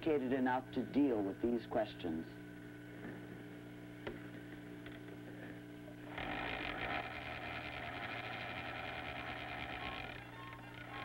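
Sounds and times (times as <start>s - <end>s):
low electrical hum: 0.0s - 11.0s
film projector clatter: 6.1s - 11.0s.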